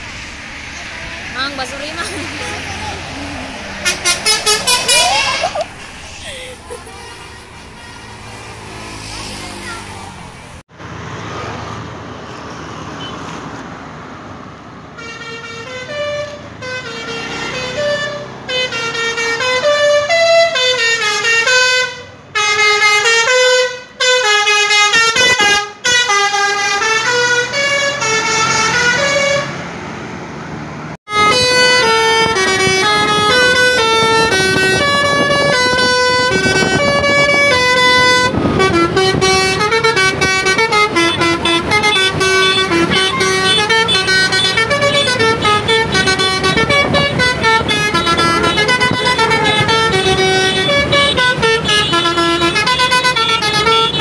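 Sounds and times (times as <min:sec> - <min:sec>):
bus air horn playing a tune: 0:03.7 - 0:05.7, 0:15.0 - 0:29.6, 0:31.1 - 0:54.0.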